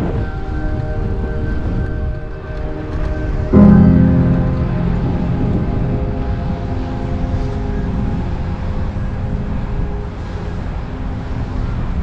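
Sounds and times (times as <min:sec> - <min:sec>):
wind buffeting microphone: 0:00.0 - 0:03.7
held musical notes: 0:00.0 - 0:11.0.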